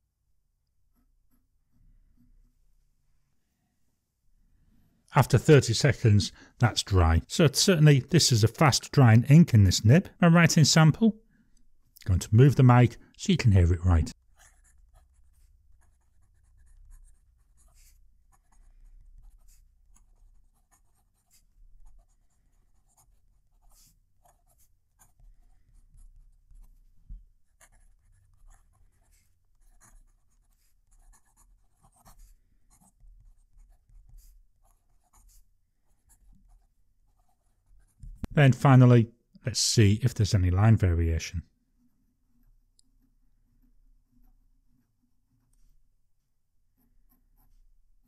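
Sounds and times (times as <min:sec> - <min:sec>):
fountain pen writing on paper: 0:14.3 - 0:38.0.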